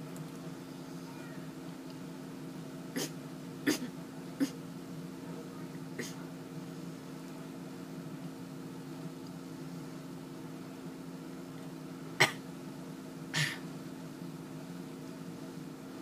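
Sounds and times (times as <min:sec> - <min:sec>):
steady low hum: 0:00.0 - 0:16.0
woman coughing: 0:03.7 - 0:04.6.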